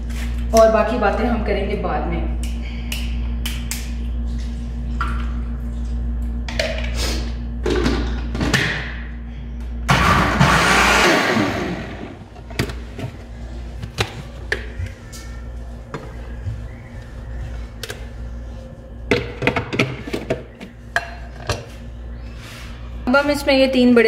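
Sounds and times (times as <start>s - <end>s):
electric blender running: 9.9s - 12.8s.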